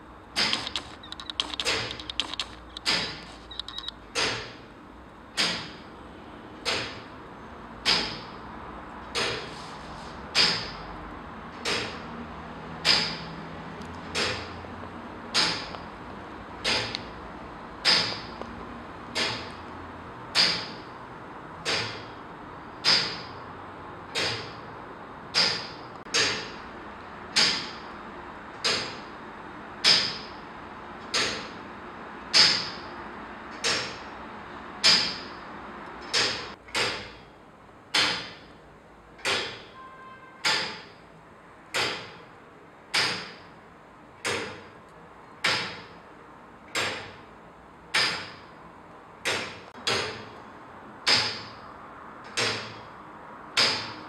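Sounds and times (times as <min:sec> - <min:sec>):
clock ticking: 0:00.4 - 0:03.9.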